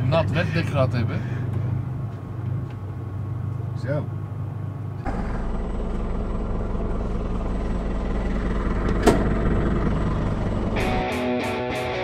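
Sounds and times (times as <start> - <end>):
truck engine idling: 0.0 - 11.9.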